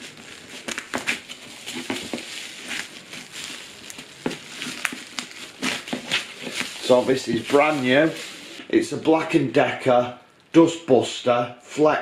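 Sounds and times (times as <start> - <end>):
cardboard and plastic rustling: 0.0 - 8.7.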